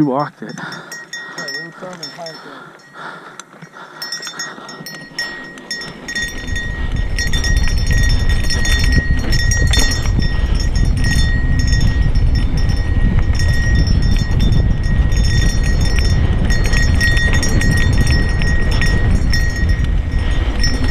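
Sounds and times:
bike rattling and clicking: 0.0 - 20.9
wind rumble on microphone: 4.3 - 20.9.

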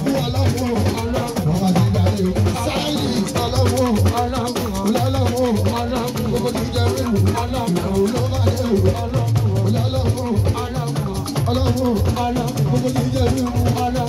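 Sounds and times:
percussive music with drums: 0.0 - 14.0.

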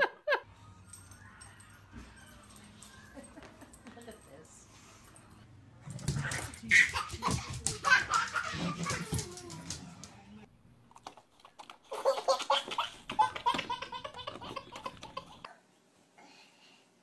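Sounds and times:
toddler laughing: 6.6 - 9.6, 11.9 - 15.5.

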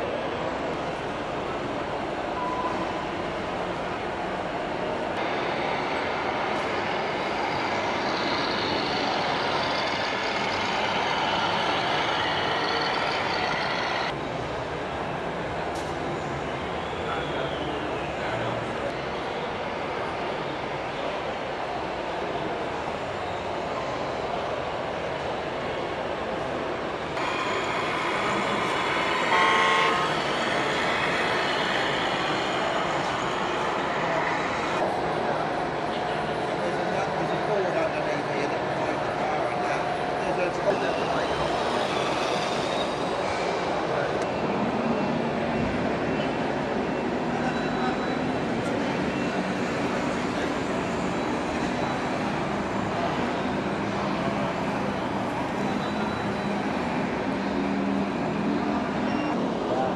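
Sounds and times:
noisy background: 0.0 - 59.9
toy truck engine sound from speaker: 7.5 - 14.1, 27.2 - 34.8
toy truck horn blast: 27.2 - 31.4.

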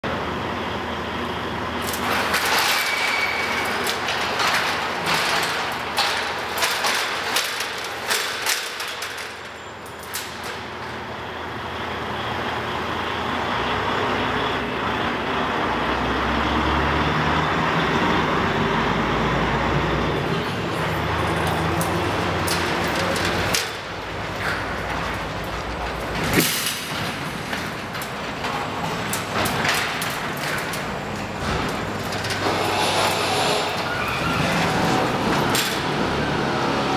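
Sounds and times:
door panels clicking and rattling: 1.8 - 11.1, 20.5 - 36.1.

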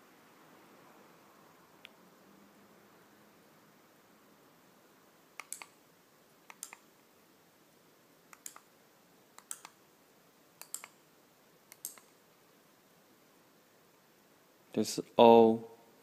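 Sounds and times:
remote button clicks: 5.4 - 5.8.

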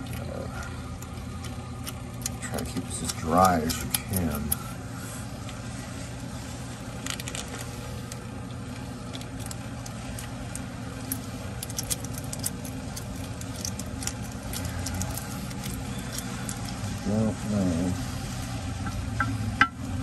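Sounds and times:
low machine hum: 0.0 - 20.0.

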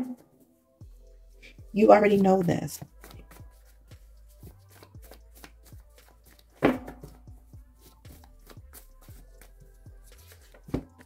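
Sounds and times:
paper cards being shuffled: 4.6 - 7.2, 10.1 - 11.0.

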